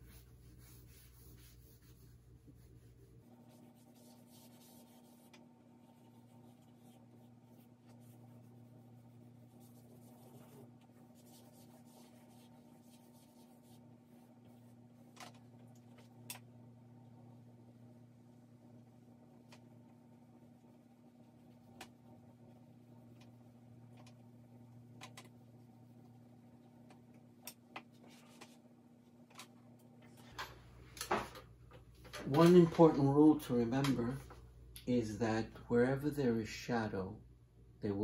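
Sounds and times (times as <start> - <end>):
drawing stick scratching paper: 0.0 - 14.7.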